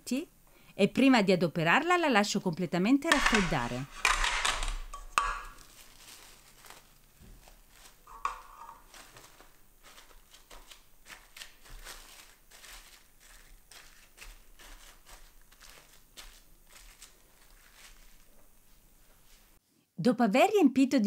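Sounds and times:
plastic cling film crinkling: 3.1 - 19.6.

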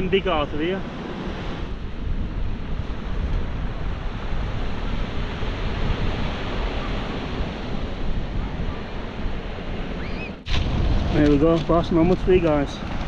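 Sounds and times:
wind buffeting microphone: 0.0 - 13.0
surf washing over cobbles: 10.4 - 13.0.

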